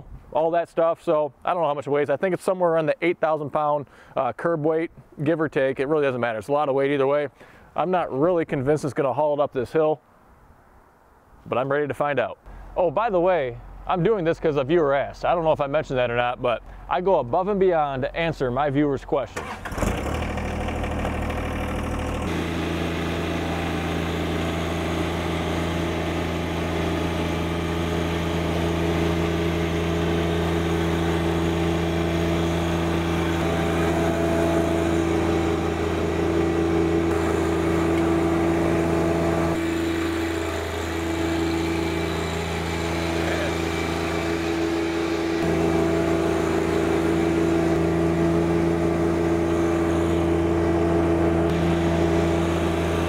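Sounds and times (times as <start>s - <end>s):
tractor diesel engine running: 19.4s - 53.0s.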